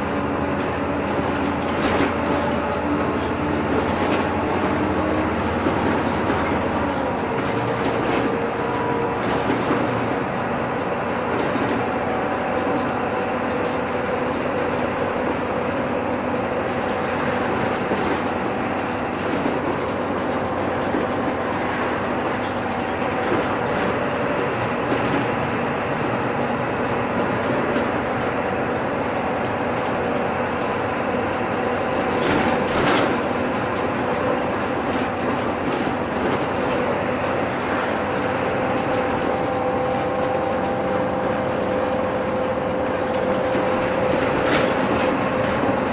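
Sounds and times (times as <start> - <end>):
bus engine drone: 0.0 - 45.9
road noise: 0.0 - 45.9.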